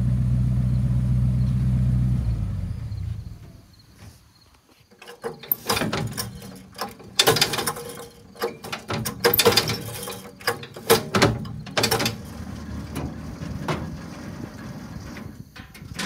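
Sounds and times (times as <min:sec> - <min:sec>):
recoil starter rope pulled: 0:04.8 - 0:16.0.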